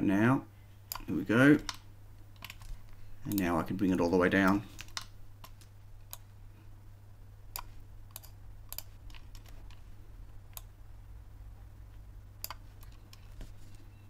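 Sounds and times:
steady low hum: 0:00.0 - 0:14.0
computer mouse and key clicks: 0:00.9 - 0:03.5, 0:04.4 - 0:06.3, 0:07.5 - 0:09.9, 0:10.5 - 0:10.8, 0:12.4 - 0:13.9.

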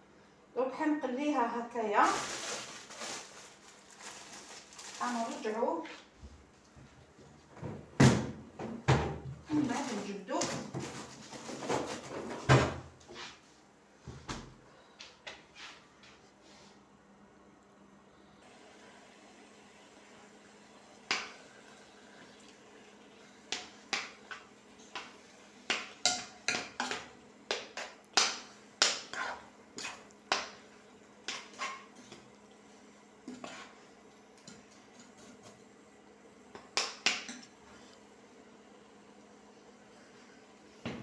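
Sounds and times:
faint steady hum: 0:00.0 - 0:41.0
metal spoon scraping a pot: 0:29.1 - 0:30.0.

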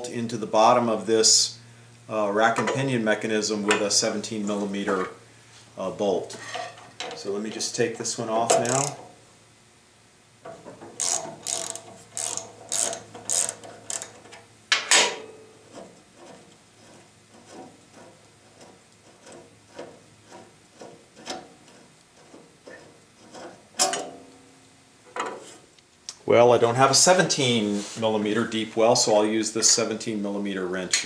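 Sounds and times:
metal parts clicking: 0:08.5 - 0:09.0, 0:10.9 - 0:15.1
socket ratchet clicking: 0:08.6 - 0:09.0, 0:11.0 - 0:14.2.

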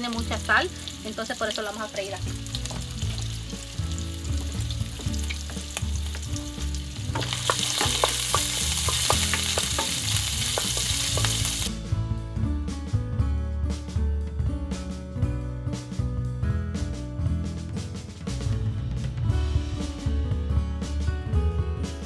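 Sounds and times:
shrimp sizzling in hot oil: 0:00.0 - 0:11.7.

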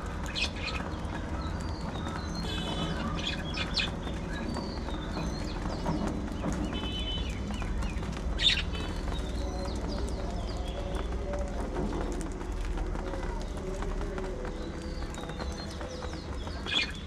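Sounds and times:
budgerigars chirping and warbling: 0:00.2 - 0:11.1.

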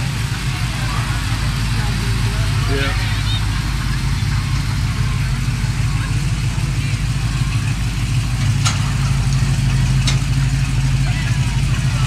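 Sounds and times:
truck engine drone: 0:00.0 - 0:12.0
tyres hissing on wet pavement: 0:00.0 - 0:12.0.

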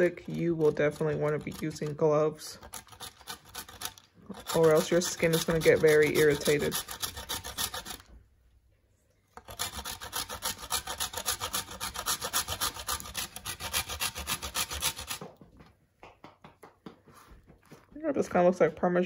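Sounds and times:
soap grating on metal grater: 0:00.0 - 0:08.1, 0:09.4 - 0:15.2.

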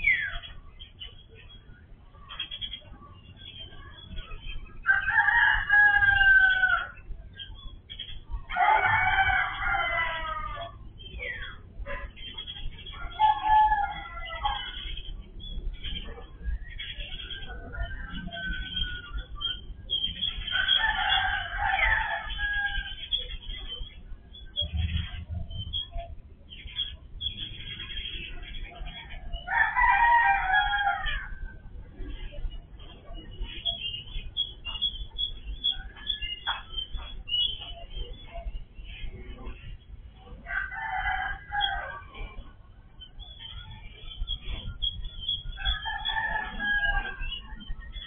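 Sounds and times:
rooster crowing: 0:04.8 - 0:07.0, 0:08.5 - 0:10.8, 0:29.4 - 0:31.3, 0:45.6 - 0:47.4.

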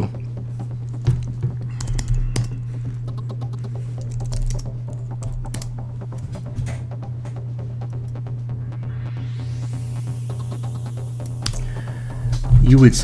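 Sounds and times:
steady low hum: 0:00.0 - 0:13.0
typing on computer keyboard: 0:01.7 - 0:05.8.

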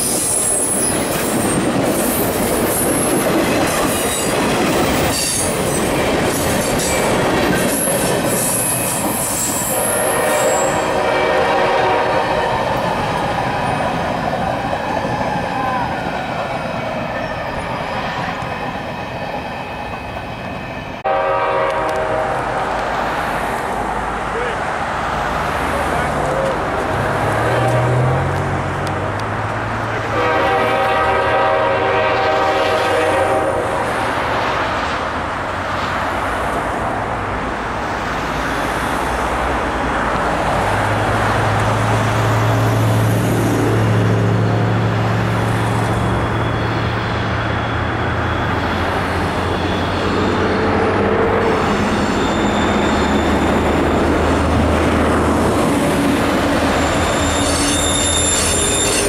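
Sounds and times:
high wheel squeal: 0:00.0 - 0:11.0, 0:14.8 - 0:21.0, 0:44.4 - 0:59.0
passing road traffic: 0:00.0 - 0:59.0
rail noise: 0:00.0 - 0:59.0
train air horn chord: 0:09.7 - 0:12.7, 0:21.0 - 0:22.6, 0:30.1 - 0:33.8.

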